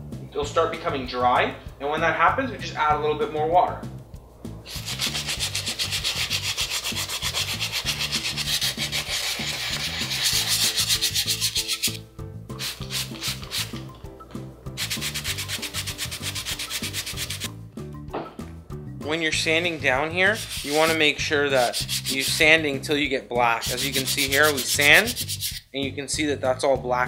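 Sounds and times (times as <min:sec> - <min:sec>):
sandpaper rubbing strokes: 0:04.7 - 0:14.0, 0:14.8 - 0:17.5, 0:20.2 - 0:22.7, 0:23.6 - 0:25.7.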